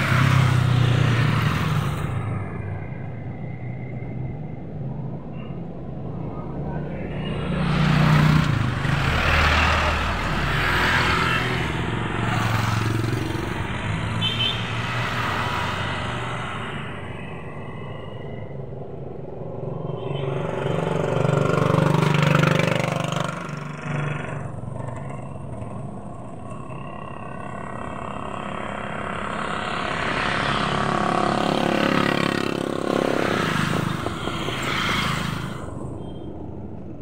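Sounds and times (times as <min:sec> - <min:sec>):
road and wind noise: 0:00.0 - 0:37.0.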